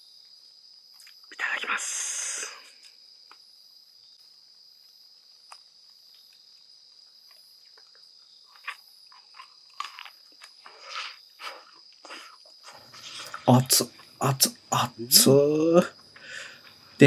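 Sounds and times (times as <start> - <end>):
crickets chirping: 0.0 - 17.0
sharp clicks and crunches: 7.3 - 14.2.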